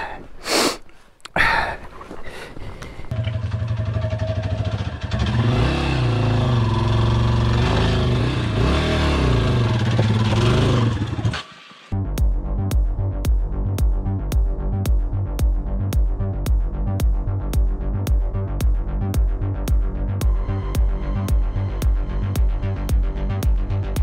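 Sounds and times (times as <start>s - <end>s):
motorcycle engine revving: 3.1s - 12.0s.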